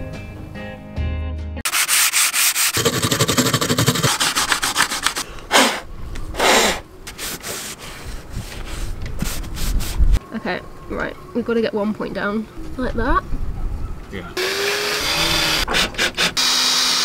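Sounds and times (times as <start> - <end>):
sanding block rubbing: 1.6 - 5.8, 6.4 - 10.0
breath puffs blowing: 2.7 - 10.0.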